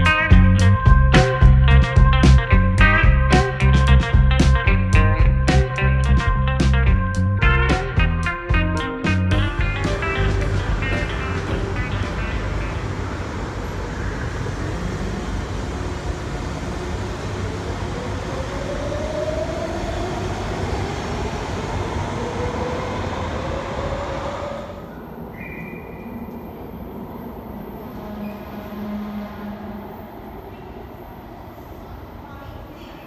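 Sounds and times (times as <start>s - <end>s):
station hum: 0.0s - 16.5s
distant train approaching in tunnel: 0.0s - 33.0s
subway train pulling out: 0.0s - 33.0s.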